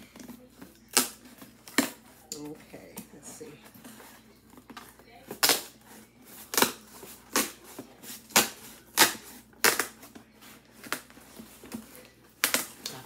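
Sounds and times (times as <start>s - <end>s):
cardboard rustling and scraping: 3.4s - 12.8s
packing tape ripping: 6.4s - 10.1s, 10.7s - 13.0s.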